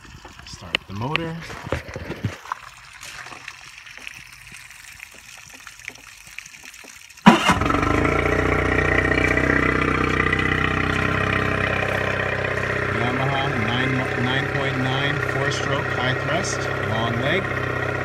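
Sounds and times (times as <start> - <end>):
outboard motor starting and idling: 7.2 - 18.0.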